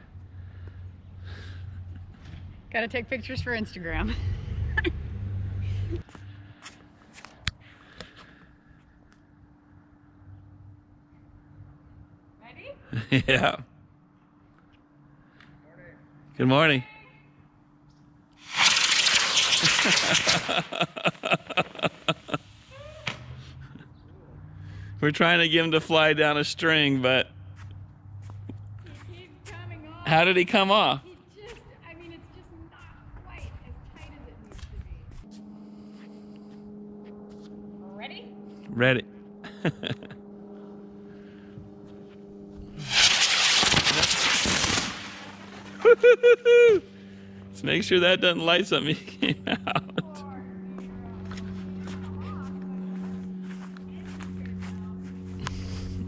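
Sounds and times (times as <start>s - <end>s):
crackling pops: 18.4s - 20.9s, 42.8s - 45.8s
rocket engine hissing: 18.4s - 23.4s, 42.6s - 45.9s.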